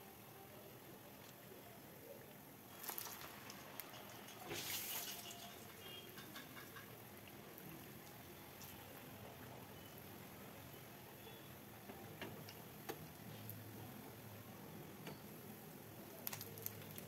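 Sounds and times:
food sizzling in hot oil: 0:02.7 - 0:07.7.

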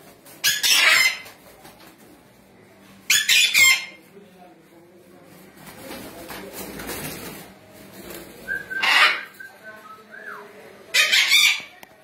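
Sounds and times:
macaws screeching: 0:00.5 - 0:01.2, 0:08.8 - 0:09.4, 0:11.0 - 0:11.7
wings flapping: 0:05.6 - 0:08.8.

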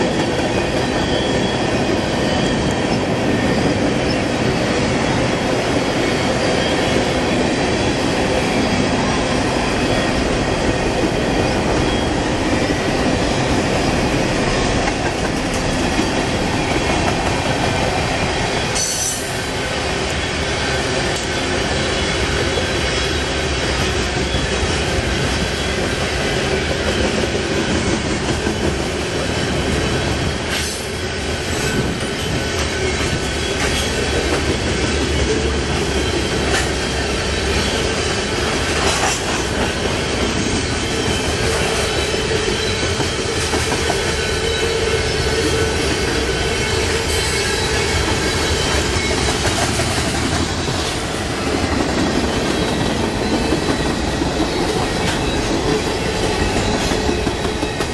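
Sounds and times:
high wheel squeal: 0:00.0 - 0:04.8
train wheels rumbling on rail: 0:00.0 - 0:57.9.

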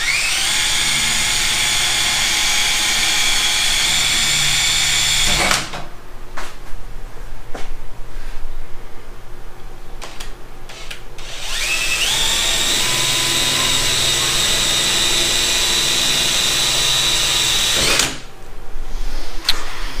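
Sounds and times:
cordless drill motor whine: 0:00.0 - 0:05.6, 0:10.7 - 0:18.2
drill clicks: 0:10.7 - 0:18.3.

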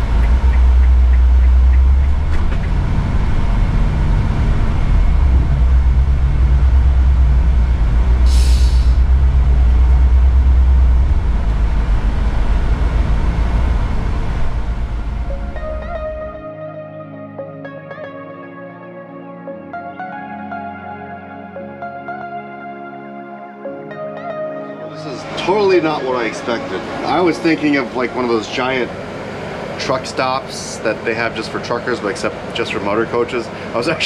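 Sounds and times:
diesel engine rumble: 0:00.0 - 0:16.4, 0:25.0 - 0:34.0
road noise: 0:00.0 - 0:16.4, 0:24.5 - 0:34.0
short hiss: 0:08.3 - 0:09.0.

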